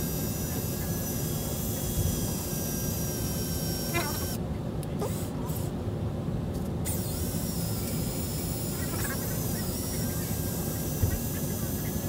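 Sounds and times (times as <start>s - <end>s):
drill motor whine: 0.0s - 4.4s
constant low rumble: 0.0s - 12.0s.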